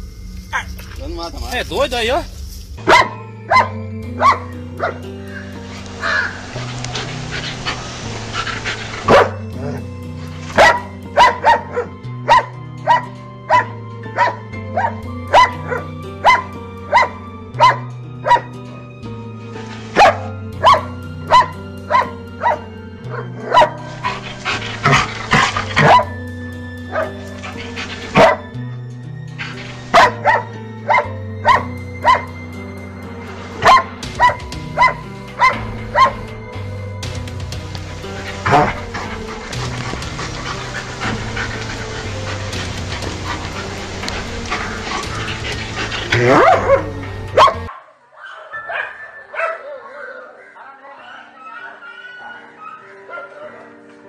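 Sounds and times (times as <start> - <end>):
dog barking: 2.8 - 6.4, 8.4 - 9.8, 10.6 - 18.5, 20.0 - 26.2, 26.9 - 28.5, 29.8 - 32.3, 33.6 - 36.3, 38.3 - 53.8.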